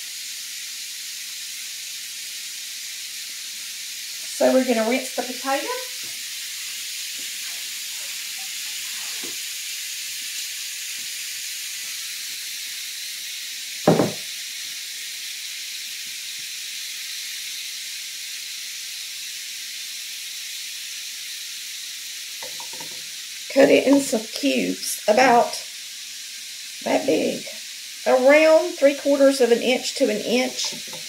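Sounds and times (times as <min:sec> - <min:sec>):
bacon sizzling in a skillet: 0:00.0 - 0:31.0
pot clunk: 0:13.9 - 0:14.2, 0:22.4 - 0:23.0, 0:30.6 - 0:31.0.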